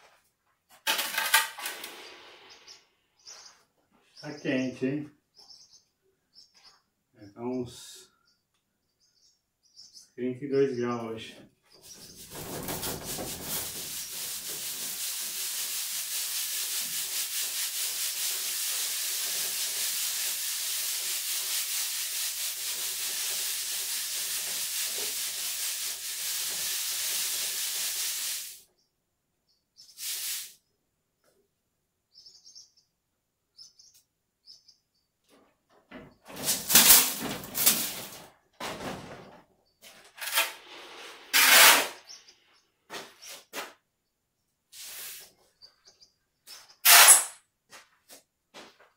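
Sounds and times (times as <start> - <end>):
sand hissing through sieve: 12.2 - 28.6, 29.9 - 30.6, 44.7 - 45.3
shovel scraping sand: 12.2 - 28.6, 40.1 - 42.1, 44.8 - 45.2, 46.8 - 47.4.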